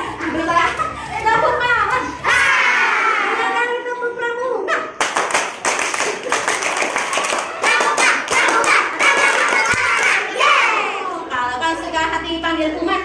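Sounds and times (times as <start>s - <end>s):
children clapping: 5.0s - 10.5s.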